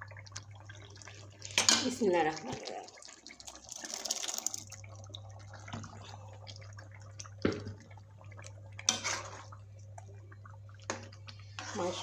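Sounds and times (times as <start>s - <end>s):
curry sizzling and spluttering: 0.0s - 12.0s
low steady hum: 0.0s - 12.0s.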